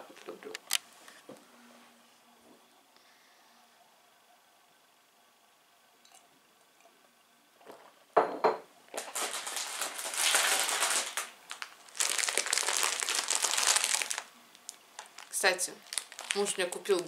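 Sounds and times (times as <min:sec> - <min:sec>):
plastic bag crinkling: 0:08.9 - 0:17.0.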